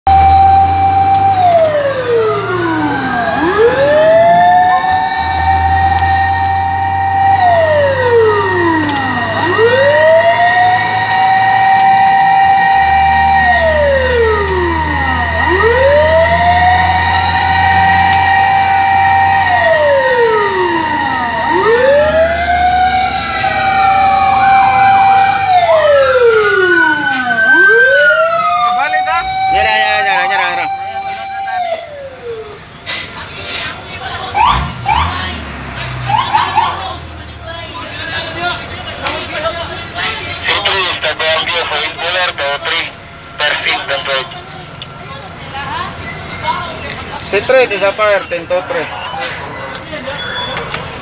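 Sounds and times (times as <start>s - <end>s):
fire truck siren wailing: 0.0s - 51.0s
more sirens: 0.1s - 51.0s
truck engine rumble: 0.1s - 51.0s.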